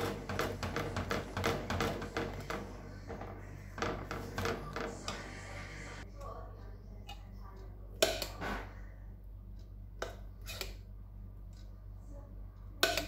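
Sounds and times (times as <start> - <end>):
spatula scraping a saucepan: 0.0 - 6.1, 10.4 - 10.8.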